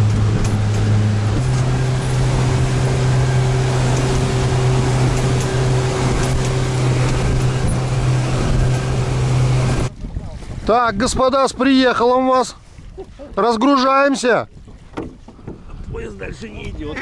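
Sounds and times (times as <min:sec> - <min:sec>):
motorboat engine droning: 0:00.0 - 0:10.8
wind and water rushing: 0:00.0 - 0:17.0.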